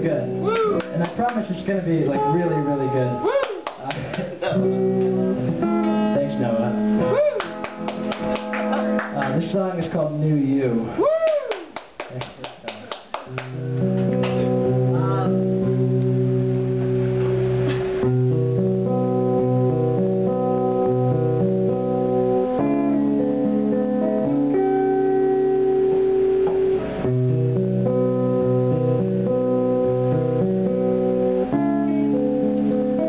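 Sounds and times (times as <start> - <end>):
acoustic guitar strumming chords: 1.6 - 3.3, 4.3 - 9.0, 13.4 - 33.0.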